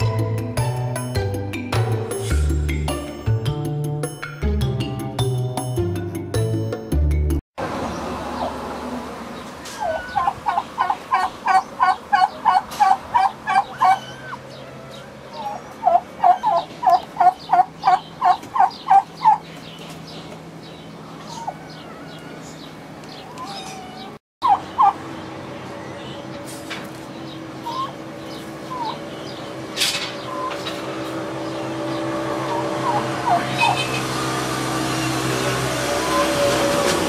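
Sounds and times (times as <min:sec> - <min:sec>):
fowl calling: 0:09.8 - 0:19.4, 0:21.1 - 0:25.0, 0:27.6 - 0:29.5, 0:30.2 - 0:30.8, 0:31.9 - 0:34.1.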